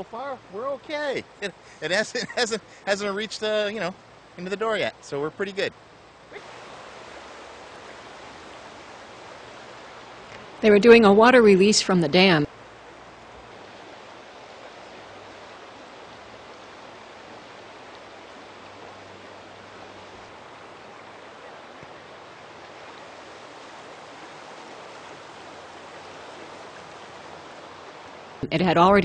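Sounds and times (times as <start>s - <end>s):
river rushing: 0.0s - 28.9s.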